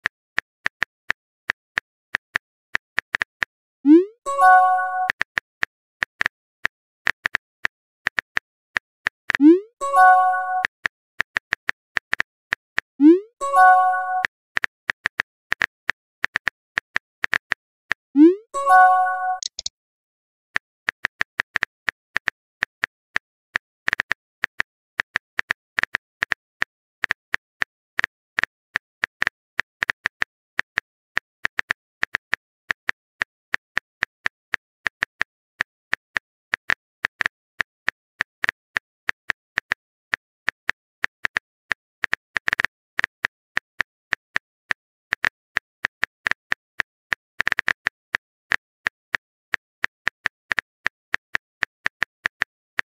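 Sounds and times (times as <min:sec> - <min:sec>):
keyboard tap clicks: 0:19.3 - 0:19.7.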